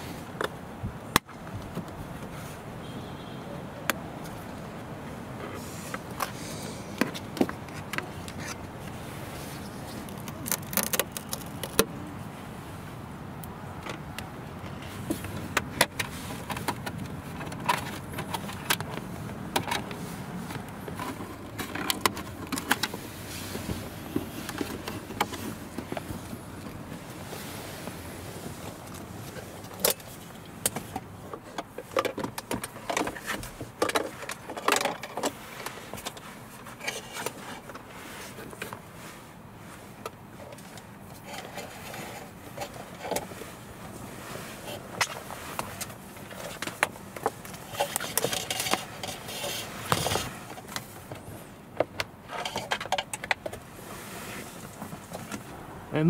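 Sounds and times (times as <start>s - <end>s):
hands handling plastic trim: 9.6s - 11.9s.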